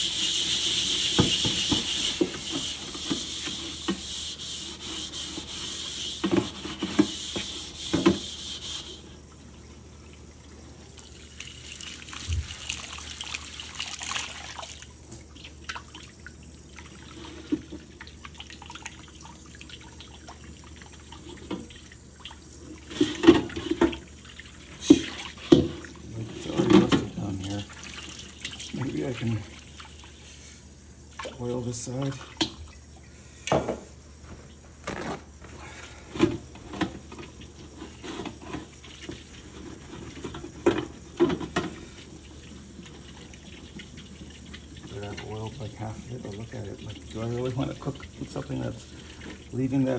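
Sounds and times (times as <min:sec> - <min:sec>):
tap running: 0:00.0 - 0:09.1
hands scrubbing a wok: 0:00.0 - 0:09.2.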